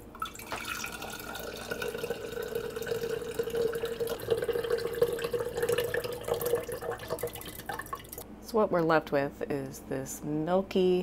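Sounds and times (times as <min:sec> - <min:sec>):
water pouring through strainer: 0:00.2 - 0:08.2.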